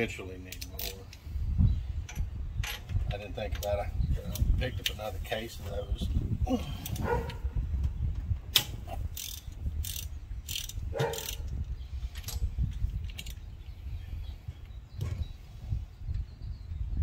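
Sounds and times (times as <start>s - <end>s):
ratchet wrench clicking: 8.6s - 11.6s.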